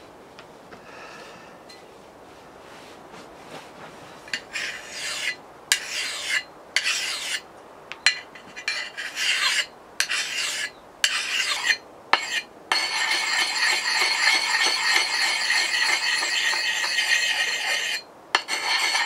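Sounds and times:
metal file rasping on steel: 4.3s - 7.4s, 8.1s - 19.0s.

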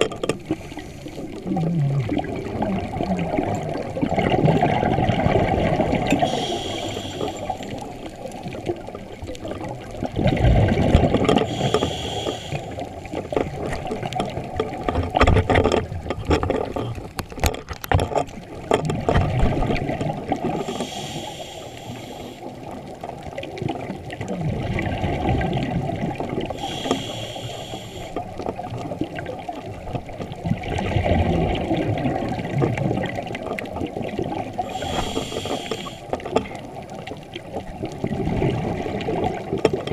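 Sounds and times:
exhaled bubbles rushing: 0.0s - 15.2s, 18.4s - 26.8s, 28.6s - 39.9s
regulator breathing hiss: 6.2s - 7.9s, 11.4s - 12.9s, 20.6s - 22.5s, 26.6s - 28.2s, 34.7s - 36.1s.

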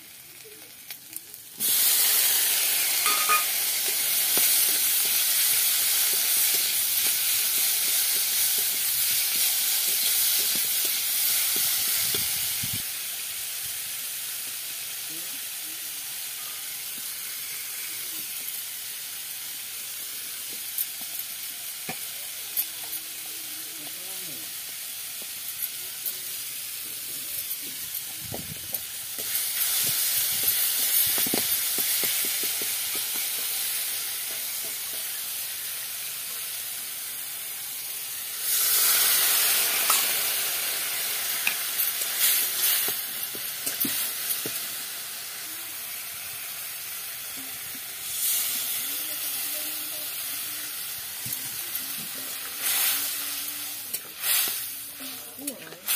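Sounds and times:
masala sizzling in a pan: 0.0s - 55.9s
steel ladle scraping a pan: 3.0s - 3.6s.

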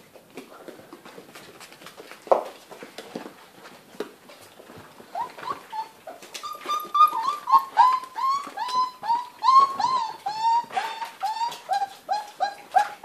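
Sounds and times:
puppies whining: 5.0s - 13.0s.

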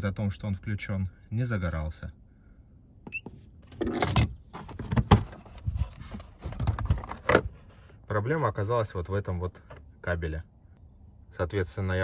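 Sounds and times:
handling knocks and clatters: 3.7s - 7.5s.

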